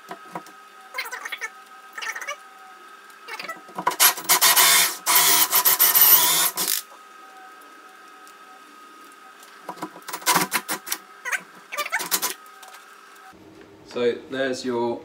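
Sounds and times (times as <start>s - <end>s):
drill hole saw cutting wood: 3.9s - 6.9s.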